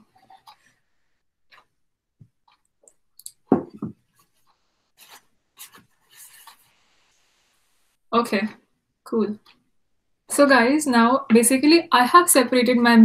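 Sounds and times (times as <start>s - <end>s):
thump on tabletop: 3.5s - 4.0s.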